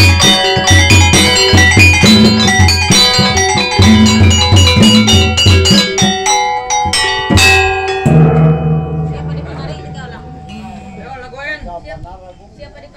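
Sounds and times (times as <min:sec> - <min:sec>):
metallophone keys struck with mallets: 0:00.0 - 0:11.5
low drum beats: 0:00.0 - 0:12.1
deep ringing gong stroke: 0:07.5 - 0:11.4.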